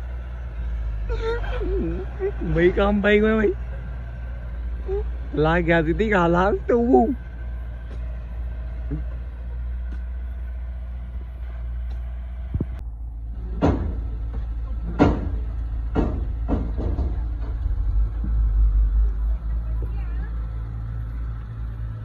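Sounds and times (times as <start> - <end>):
vehicle engine rumbling: 0.0 - 22.0
sharp knocks and clunks: 8.8 - 9.2, 13.4 - 18.7.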